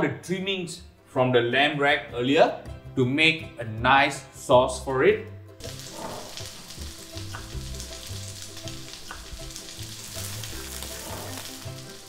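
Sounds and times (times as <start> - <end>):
fat sizzling in a frying pan: 5.6 - 12.0
stock poured into pan: 5.6 - 12.0.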